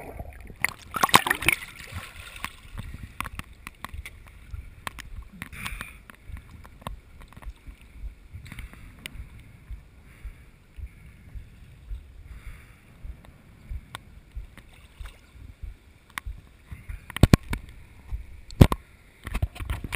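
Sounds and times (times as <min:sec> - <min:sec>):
low rumble: 0:00.0 - 0:18.6
water waves lapping: 0:00.0 - 0:18.6
water clicking on camera housing: 0:02.4 - 0:07.6, 0:17.1 - 0:19.9.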